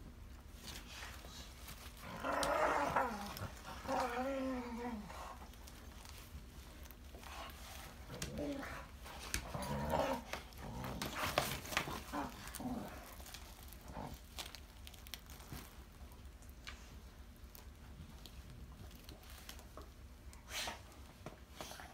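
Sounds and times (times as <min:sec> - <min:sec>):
dogs growling: 0:01.3 - 0:06.1, 0:07.2 - 0:14.6
clicks and rustles: 0:05.2 - 0:20.4.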